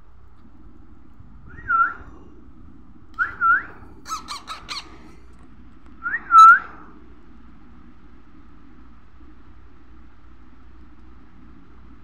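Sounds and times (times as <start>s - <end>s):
baby parrot squeaky calls: 4.1s - 5.1s.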